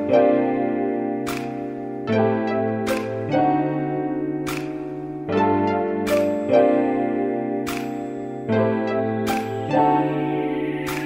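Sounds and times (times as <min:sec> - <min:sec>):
soft instrumental music: 0:00.0 - 0:11.0
sharp percussive clicks: 0:01.2 - 0:01.8, 0:04.4 - 0:05.0, 0:06.1 - 0:06.6, 0:07.6 - 0:08.3.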